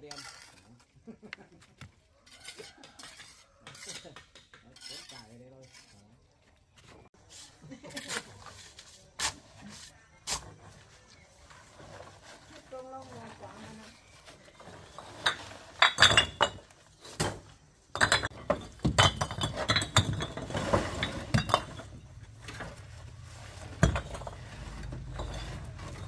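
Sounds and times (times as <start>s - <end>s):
hard objects clinking and knocking: 14.8s - 22.6s, 23.7s - 26.0s.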